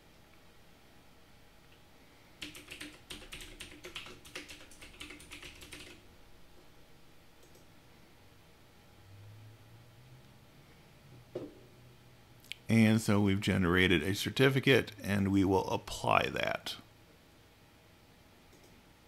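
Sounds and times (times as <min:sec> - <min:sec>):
computer keyboard typing: 0:02.4 - 0:06.0.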